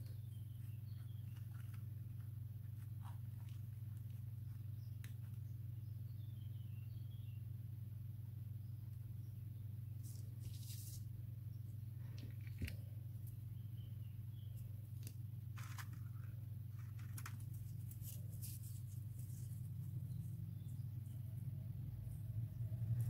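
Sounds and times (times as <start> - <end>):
steady low hum: 0.0 - 23.0
paper rustling and clicking: 15.0 - 19.6.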